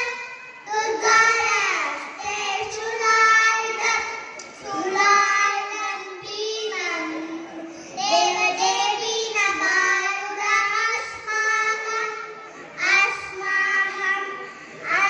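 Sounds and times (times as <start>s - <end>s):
children singing: 0.0s - 15.0s.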